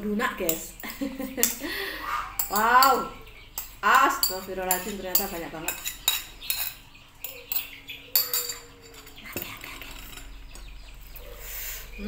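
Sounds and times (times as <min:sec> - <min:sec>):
metal spoon clinking on a bowl: 0:00.4 - 0:01.6, 0:02.4 - 0:10.4.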